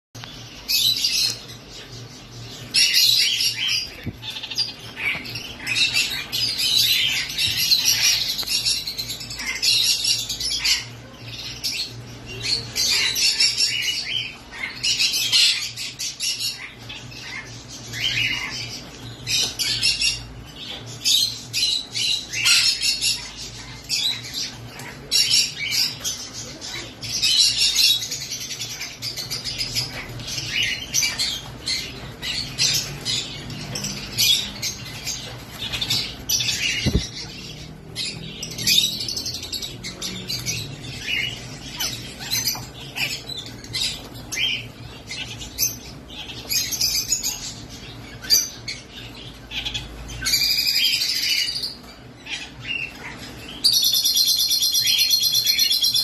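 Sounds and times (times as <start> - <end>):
parakeets chattering and squawking: 0.2 - 56.0.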